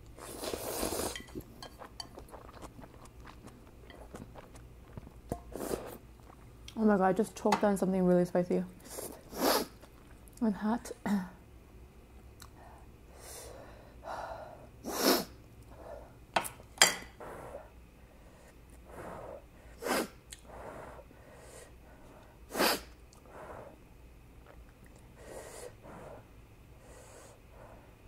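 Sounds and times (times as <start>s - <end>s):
breathing and eating sounds: 0.2s - 6.5s, 12.4s - 16.3s, 17.0s - 28.0s.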